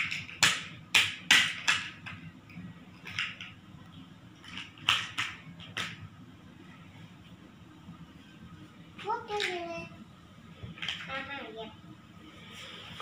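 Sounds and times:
plastic toy blocks clacking: 0:00.0 - 0:02.2, 0:03.0 - 0:03.6, 0:04.4 - 0:06.0.

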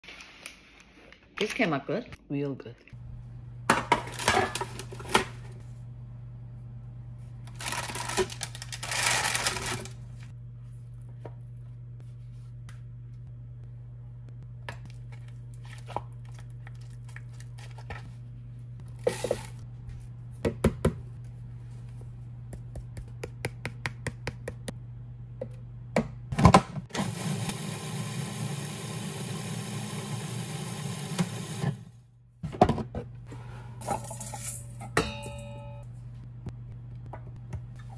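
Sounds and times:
food processor motor running: 0:26.9 - 0:31.9.

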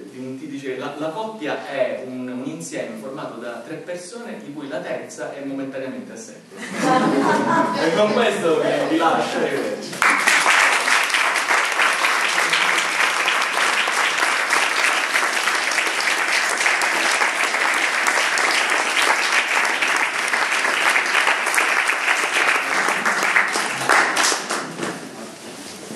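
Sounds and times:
audience applauding: 0:09.9 - 0:25.4.

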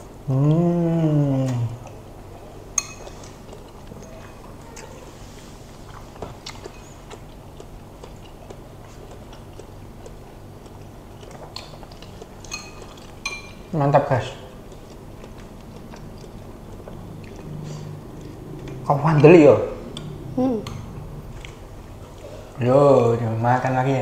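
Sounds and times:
person humming: 0:00.2 - 0:01.9, 0:20.3 - 0:20.8
mouth chewing: 0:03.1 - 0:13.7, 0:14.5 - 0:22.6.

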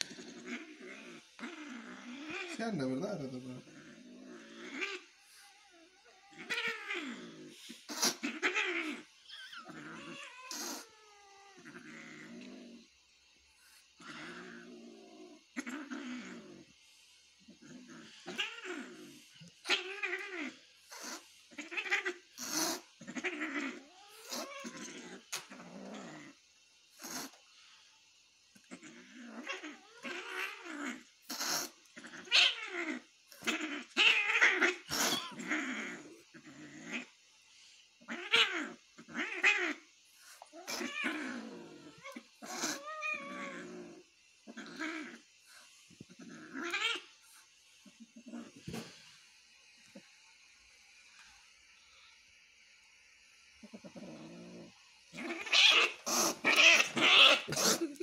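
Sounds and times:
cat growling and yowling: 0:00.0 - 0:12.9, 0:14.0 - 0:16.7, 0:17.4 - 0:26.4, 0:28.6 - 0:37.2, 0:38.0 - 0:45.3, 0:46.1 - 0:47.2, 0:53.6 - 0:58.0.

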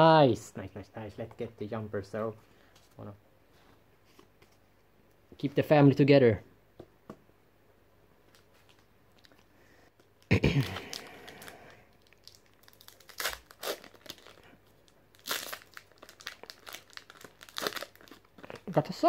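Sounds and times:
foil pack crinkling and tearing: 0:10.6 - 0:19.0.

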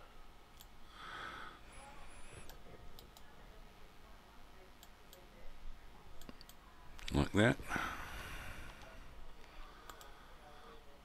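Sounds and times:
faint computer mouse clicks: 0:06.2 - 0:07.1, 0:08.8 - 0:10.1.

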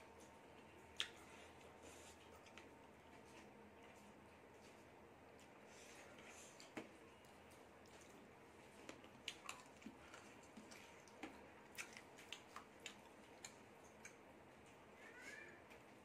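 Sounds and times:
wet chewing clicks: 0:00.2 - 0:03.5, 0:06.5 - 0:14.7.

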